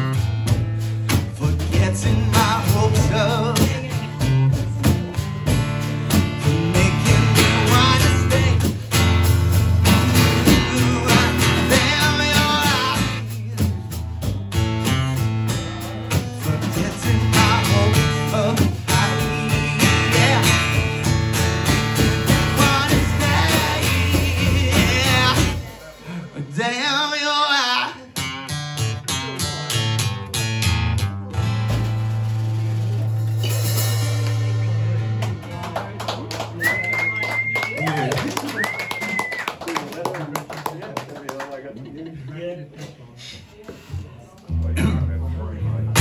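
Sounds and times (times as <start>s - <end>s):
strummed acoustic guitar: 0.0s - 26.9s, 27.7s - 35.8s, 44.5s - 46.0s
man singing: 1.1s - 9.3s, 10.0s - 14.2s, 14.8s - 28.6s.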